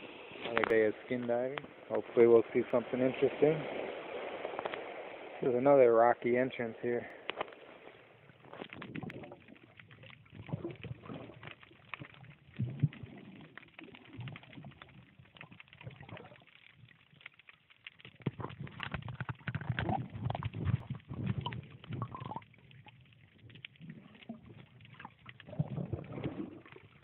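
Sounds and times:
muffled underwater crackling clicks: 0.3s - 2.8s, 3.7s - 5.4s, 6.1s - 27.0s
water sloshing: 7.3s - 27.0s.

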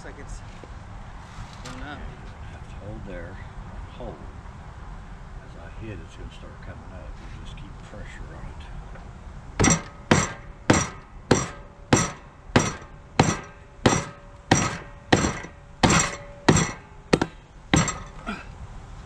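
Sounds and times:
hammer striking metal: 9.6s - 18.4s.

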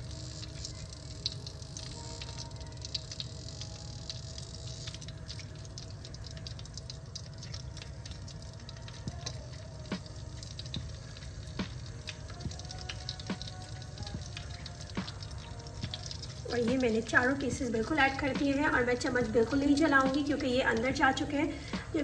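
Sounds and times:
chicken sizzling in oil: 0.0s - 22.0s
small pops and crackles: 0.4s - 17.2s.

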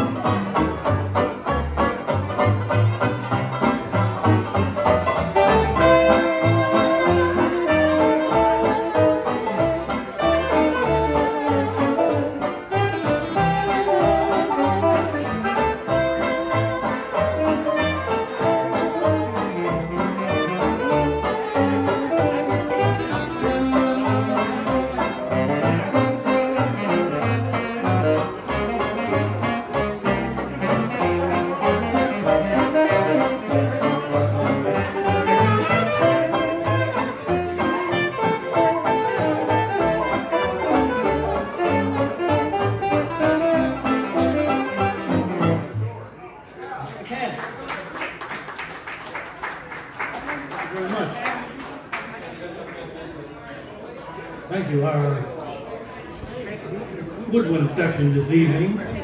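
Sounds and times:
banjo: 0.0s - 46.2s
hot jazz band playing: 0.0s - 46.2s
horn and reed lines: 4.5s - 45.8s.

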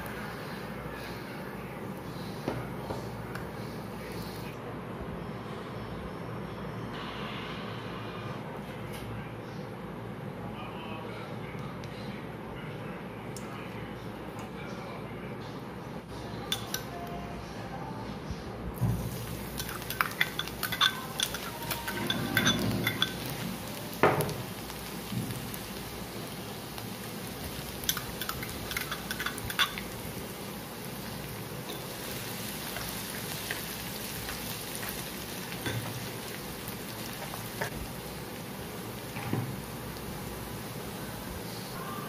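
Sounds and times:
garlic sizzling in hot oil: 18.9s - 41.8s
metal spoon scraping pan: 19.6s - 23.3s
glass bowl clinking: 19.6s - 23.4s.

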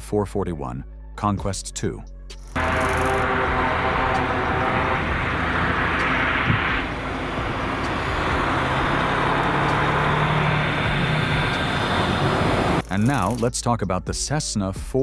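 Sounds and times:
low hum: 2.5s - 13.4s
turboprop engines droning: 2.6s - 13.4s.

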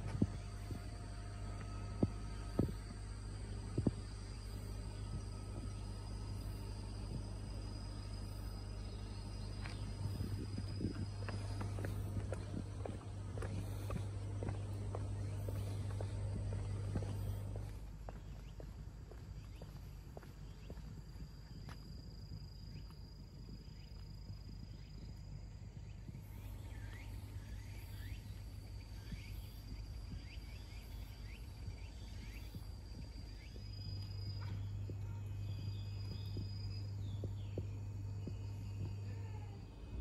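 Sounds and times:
insects droning: 0.0s - 40.0s
low steady hum: 0.0s - 40.0s.

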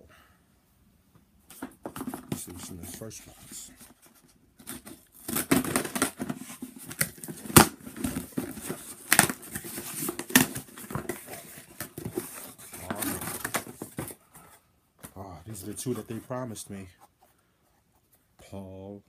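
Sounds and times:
tape and cardboard tearing: 4.6s - 13.8s.

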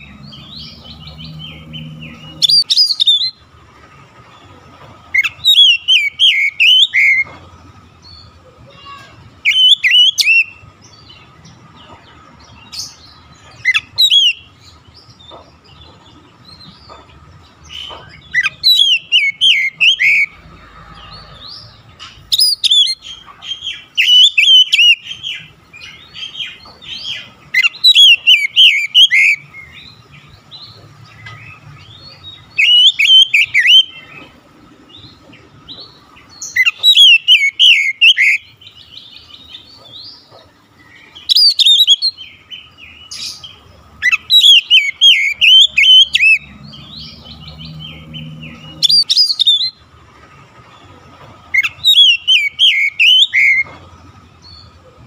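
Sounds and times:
bird whistling and chattering: 0.0s - 3.4s, 5.1s - 7.3s, 8.8s - 10.6s, 13.5s - 14.6s, 17.7s - 20.4s, 22.3s - 25.5s, 27.0s - 29.8s, 32.4s - 34.1s, 36.5s - 38.5s, 41.2s - 42.2s, 44.0s - 46.5s, 47.1s - 49.8s, 51.5s - 53.7s.

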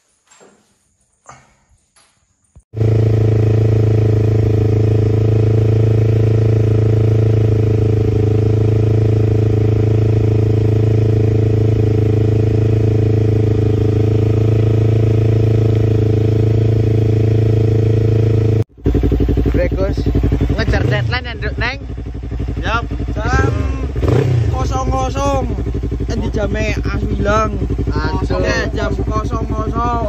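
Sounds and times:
motorcycle engine running: 2.8s - 30.0s.

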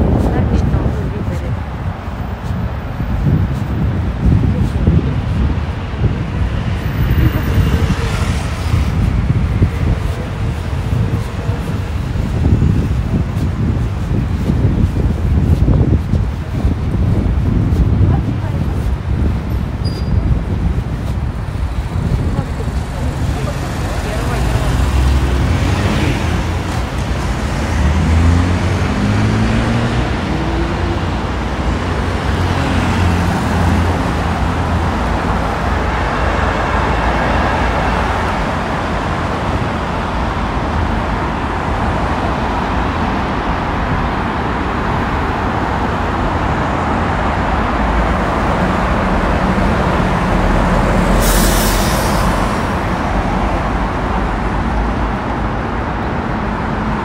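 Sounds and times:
road traffic passing: 0.0s - 57.0s
vehicle pulling away: 22.9s - 34.5s.

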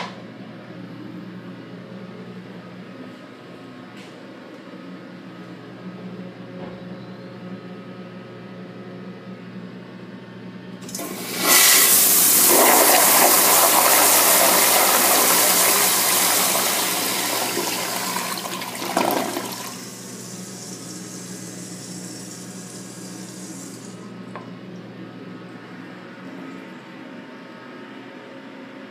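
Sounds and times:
toilet flushing: 10.8s - 24.1s.

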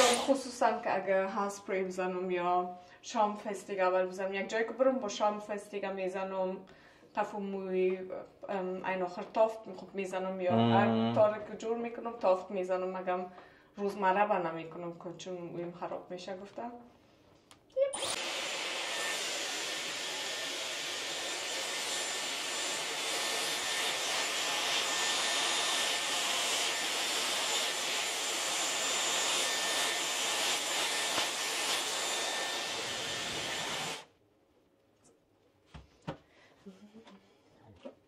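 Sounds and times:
hair dryer blowing with motor whine: 0.0s - 0.4s, 18.0s - 34.1s.

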